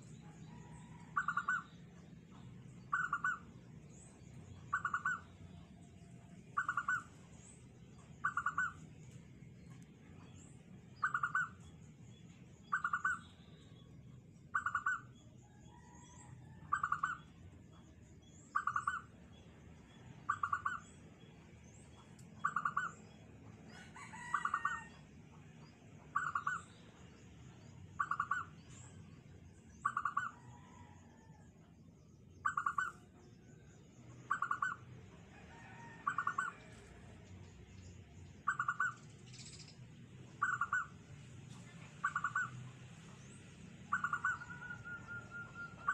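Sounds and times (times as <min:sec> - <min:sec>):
dove cooing: 0:42.0 - 0:42.5, 0:43.9 - 0:45.9.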